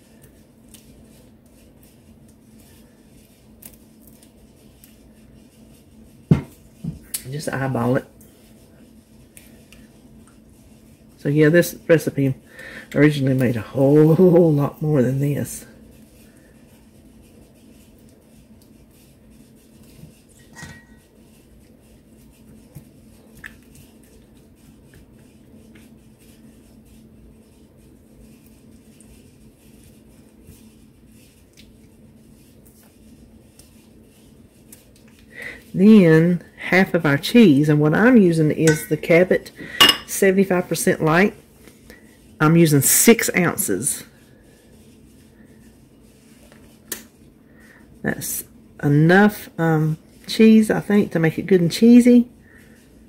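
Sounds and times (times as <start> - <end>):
spatula scraping sauce: 0.0 - 12.4
low steady hum: 0.0 - 53.0
spatula scraping steel bowl: 20.3 - 21.2, 38.0 - 41.2.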